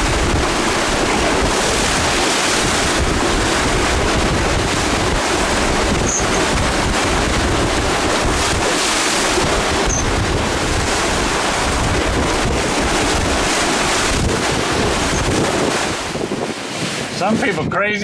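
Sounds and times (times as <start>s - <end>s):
water rushing along boat hull: 0.0s - 18.0s
wind buffeting microphone: 0.0s - 18.0s.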